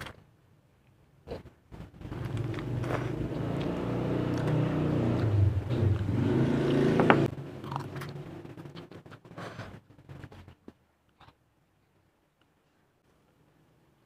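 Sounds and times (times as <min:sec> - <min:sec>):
vehicle engine humming: 0:01.8 - 0:09.4.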